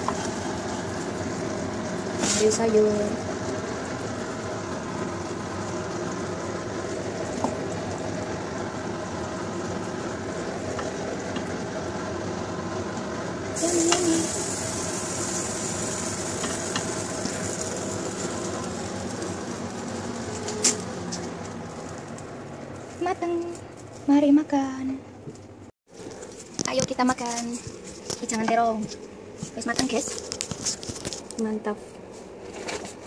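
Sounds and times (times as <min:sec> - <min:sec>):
kitchen hiss: 0:13.5 - 0:19.0.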